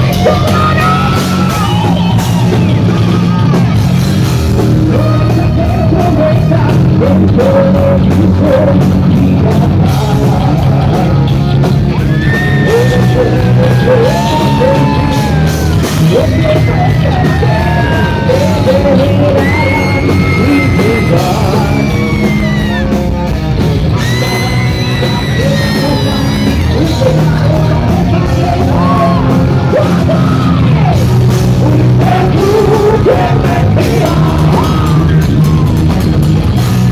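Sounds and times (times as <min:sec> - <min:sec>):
live heavy metal band: 0:00.0 - 0:36.9
singer's high vocals: 0:12.0 - 0:23.0, 0:24.0 - 0:31.0.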